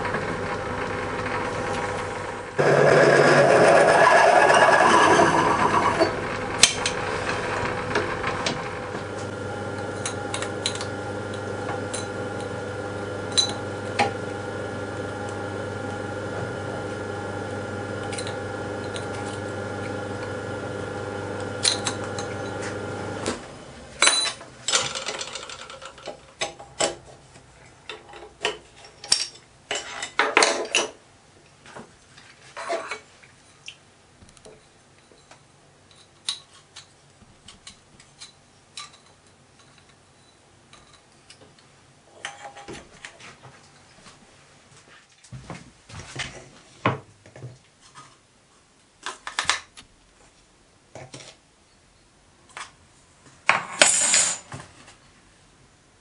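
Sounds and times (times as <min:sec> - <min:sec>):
steady machine hum: 0:00.0 - 0:24.0.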